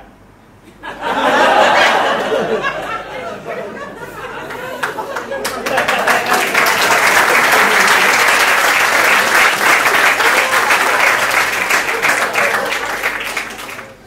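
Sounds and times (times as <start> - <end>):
audience applauding: 4.5 - 14.0.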